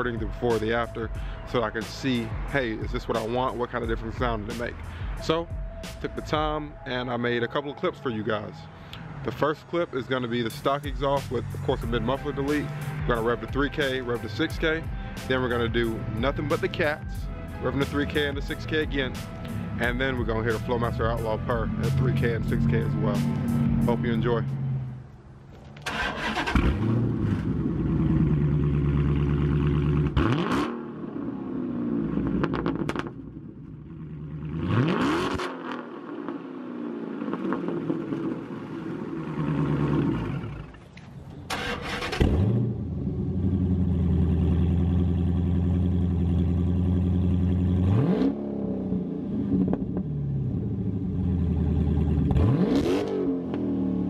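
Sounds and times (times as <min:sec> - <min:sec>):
car engine idling: 0:08.2 - 0:30.2, 0:36.0 - 0:48.0, 0:48.9 - 0:52.5
car engine revving: 0:08.9 - 0:54.0.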